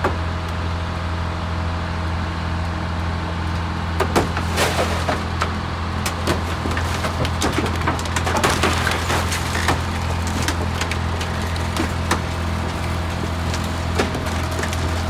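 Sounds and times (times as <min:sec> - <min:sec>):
power unit humming: 0:00.0 - 0:15.0
car body cracking: 0:04.0 - 0:15.0.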